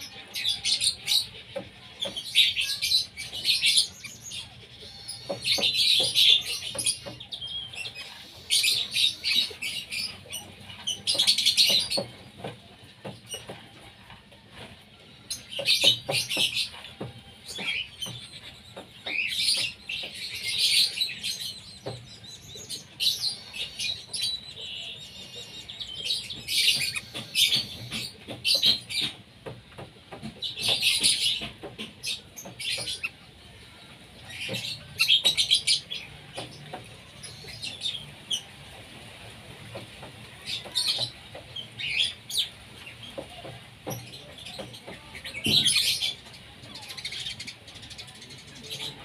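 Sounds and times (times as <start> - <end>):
ducks whistling and peeping: 0.0 - 29.2, 30.2 - 38.9.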